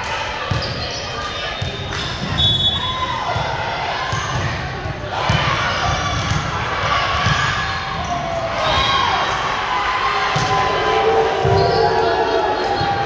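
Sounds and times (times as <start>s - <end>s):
echoing crowd voices: 0.0s - 13.0s.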